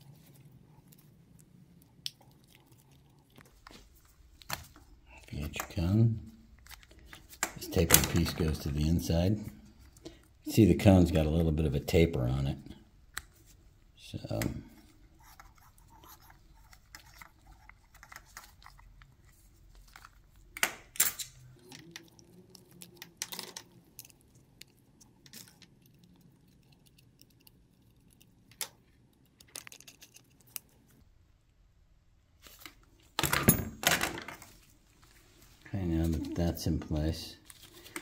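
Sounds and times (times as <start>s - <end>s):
plastic parts clicking and rubbing: 6.5s - 9.0s, 14.2s - 31.0s.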